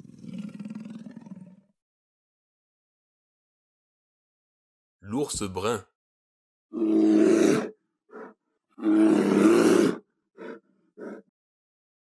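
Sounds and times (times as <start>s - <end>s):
bear roaring: 6.7s - 11.2s.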